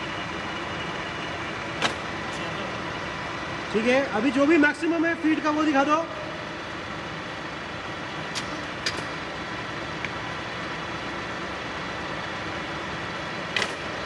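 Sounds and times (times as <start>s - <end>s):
milling machine feed whine: 0.0s - 4.7s
sharp selector clicks: 13.5s - 14.0s.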